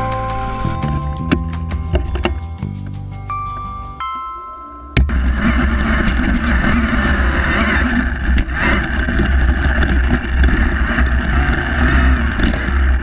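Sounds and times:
motorbike engine: 5.0s - 13.0s.

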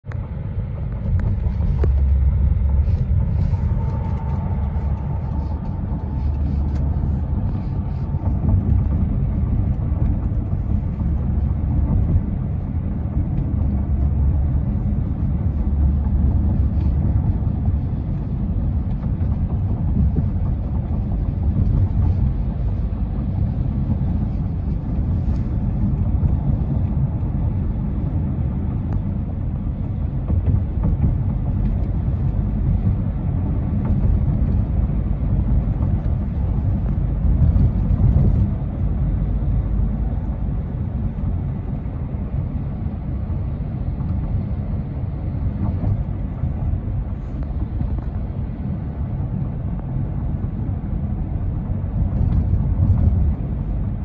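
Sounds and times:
car road rumble inside cabin: 0.0s - 54.0s.

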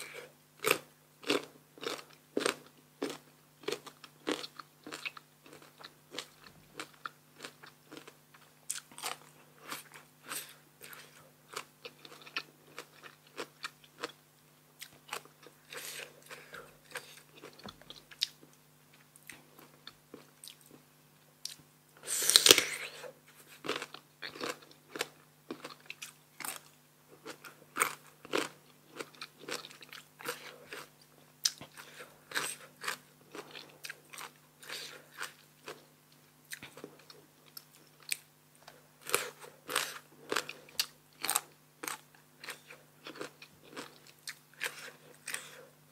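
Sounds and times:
green mango being bitten and chewed: 39.0s - 45.6s.

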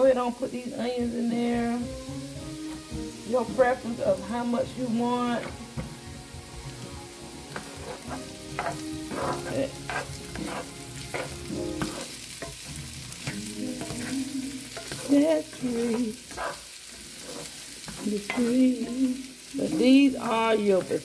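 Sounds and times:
vegetables sizzling in oil: 0.0s - 21.0s
spatula scraping a pan: 3.4s - 5.8s, 7.5s - 21.0s.

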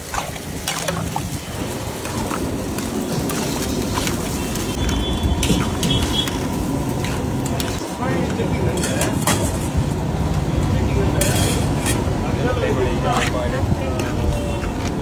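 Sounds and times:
gravy bubbling: 0.0s - 8.0s
metal spatula scraping a wok: 11.2s - 12.1s.

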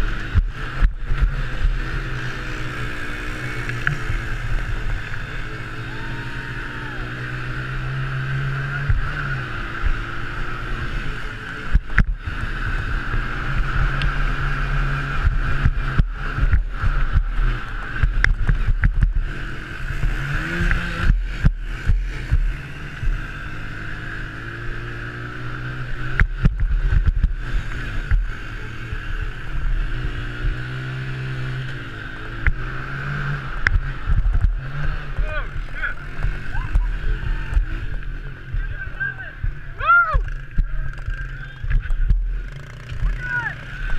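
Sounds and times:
quad engine revving: 0.0s - 43.9s
knocks and thumps from bumps: 18.0s - 19.2s, 26.1s - 27.4s, 33.6s - 38.7s.

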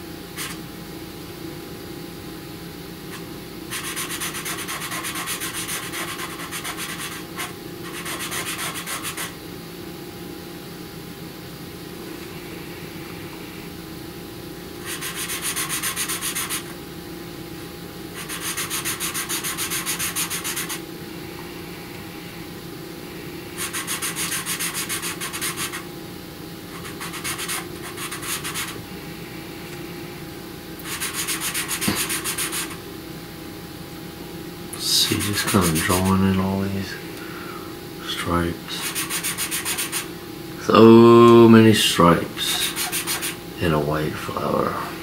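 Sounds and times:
pencil scratching on paper: 3.1s - 9.4s, 14.8s - 16.7s, 18.2s - 20.8s, 23.6s - 25.8s, 26.7s - 28.8s, 30.8s - 32.8s, 35.1s - 35.8s, 38.8s - 40.1s, 42.4s - 43.4s.

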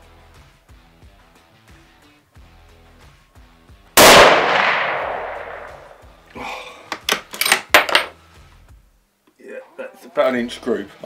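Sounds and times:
suppressed rifle shot: 4.0s - 6.1s.

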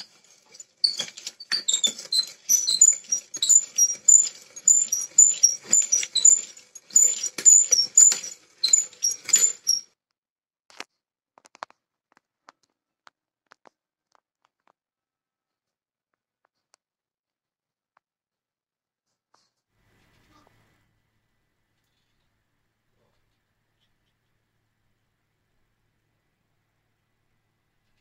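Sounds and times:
auger bit cutting wood: 0.0s - 9.8s
hand brace squeaking: 0.0s - 9.9s.

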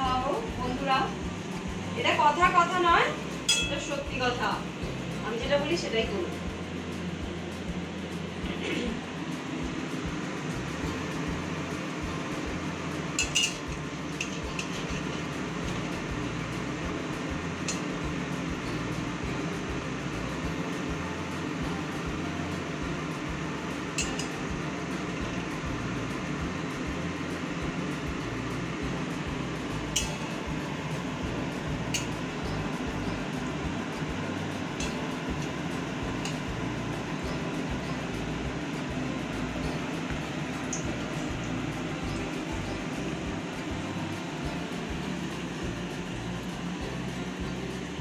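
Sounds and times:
frying hiss: 0.0s - 48.0s
steel spatula clinking on pan: 3.5s - 3.9s, 13.2s - 15.2s.

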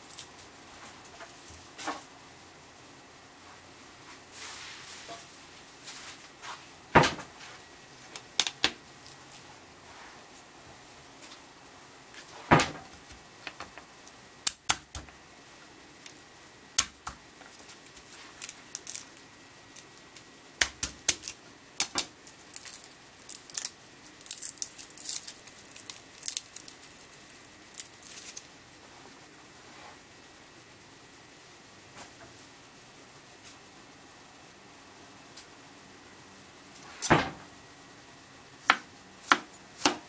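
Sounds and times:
garlic clove clicks and knocks: 14.4s - 15.2s, 16.8s - 17.2s, 20.6s - 27.0s
garlic skin crackly rustling: 16.0s - 21.4s, 22.2s - 28.6s.

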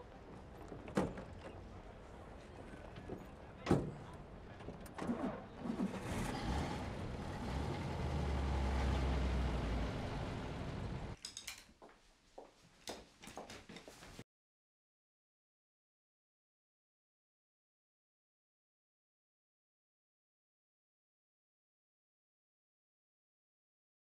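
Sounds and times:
car engine driving off: 5.6s - 11.2s.

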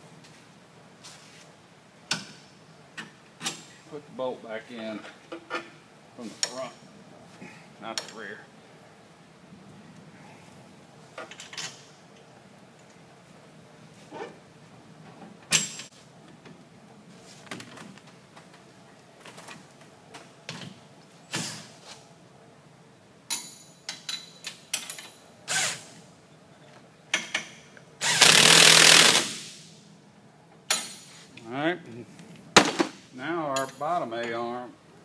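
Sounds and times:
power tool driving bolt: 25.5s - 25.9s, 27.1s - 29.6s.

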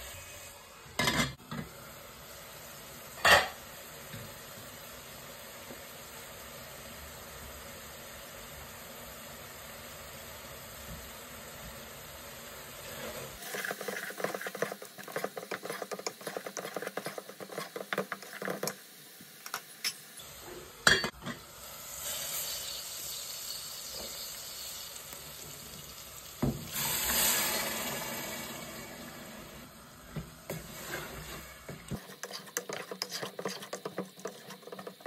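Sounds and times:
masala sizzling in oil: 1.4s - 35.0s
metal spoon scraping metal pot: 13.4s - 18.8s, 32.0s - 35.0s.

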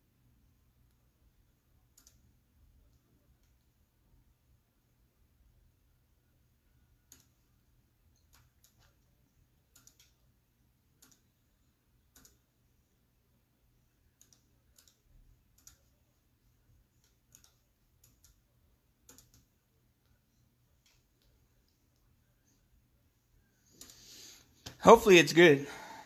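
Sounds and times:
faint irregular clicks: 1.8s - 3.8s, 7.0s - 12.7s, 13.9s - 16.2s, 16.8s - 22.8s.

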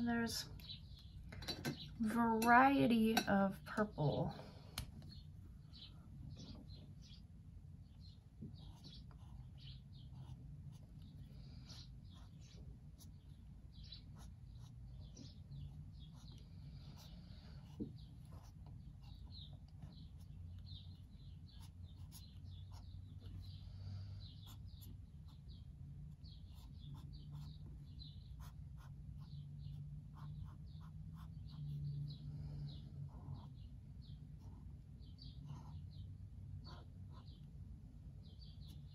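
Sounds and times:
marker scratching on paper: 8.5s - 23.5s, 24.4s - 31.9s, 34.4s - 34.7s, 35.4s - 35.9s.

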